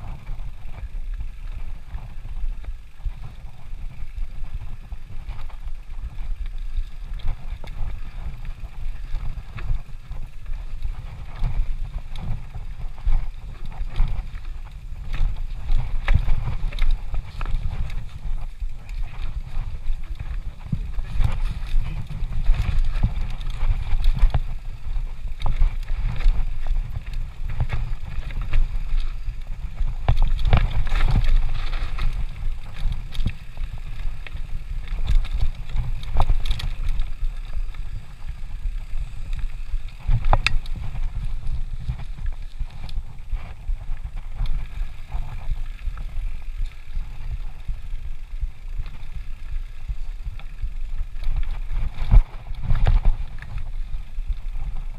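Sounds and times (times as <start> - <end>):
bike tyres rumbling on dirt: 0.0 - 54.9
clicks and rattles over rocks: 0.0 - 54.9.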